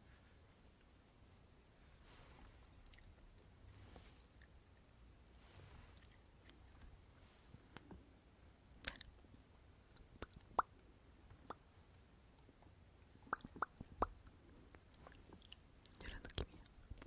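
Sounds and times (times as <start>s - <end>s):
lip smacks and tongue clicks: 2.8s - 3.5s, 6.0s - 6.7s, 8.8s - 9.1s, 9.9s - 10.8s, 13.3s - 14.2s.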